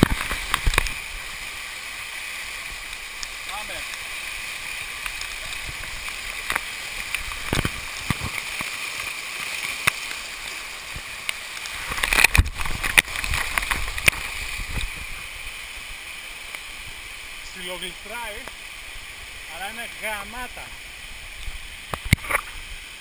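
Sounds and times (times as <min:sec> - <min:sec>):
waterfall rushing: 0:00.0 - 0:23.0
water splashing against camera housing: 0:05.0 - 0:08.8, 0:11.8 - 0:15.0.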